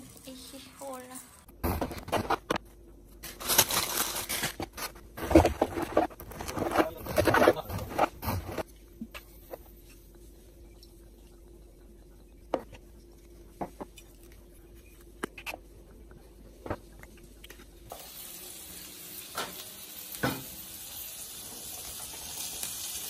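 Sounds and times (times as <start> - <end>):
meat sizzling on a griddle: 17.9 - 23.0.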